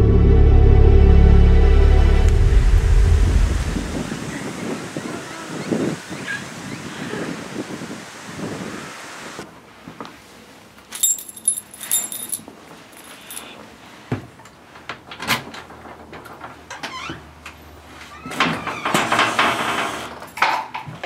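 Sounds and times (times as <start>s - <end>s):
metallic jingle: 10.9s - 12.4s, 13.0s - 13.6s
door squeak: 18.1s - 19.4s.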